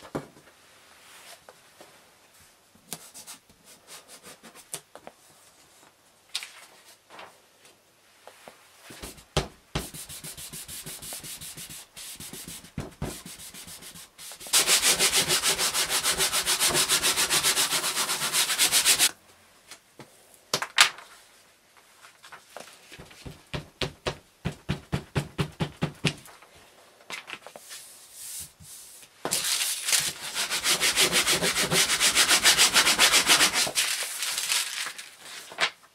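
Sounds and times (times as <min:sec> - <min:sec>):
paper handling: 0:29.3 - 0:30.2, 0:33.6 - 0:35.9.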